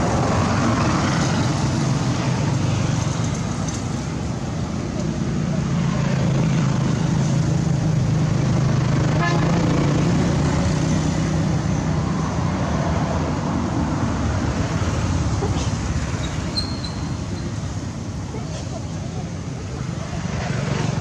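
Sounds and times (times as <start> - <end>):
vehicle engine rumble: 0.0 - 21.0.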